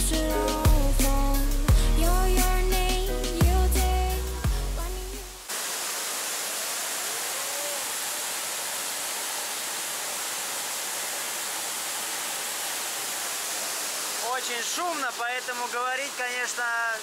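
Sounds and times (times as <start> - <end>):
music: 0.0 - 5.5
waterfall roaring: 5.4 - 17.0.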